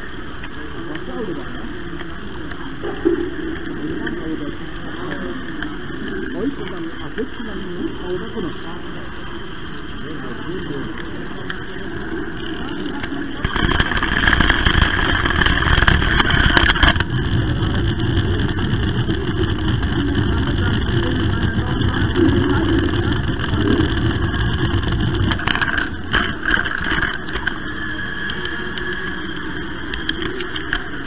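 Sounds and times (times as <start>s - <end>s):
motor whine: 0.0s - 31.0s.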